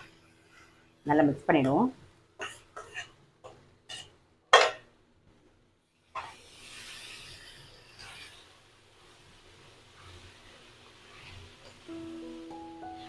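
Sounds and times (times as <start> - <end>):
spatula scraping a pan: 0.0 - 0.8, 2.4 - 4.8, 6.0 - 12.0
soft steady hiss: 0.0 - 13.0.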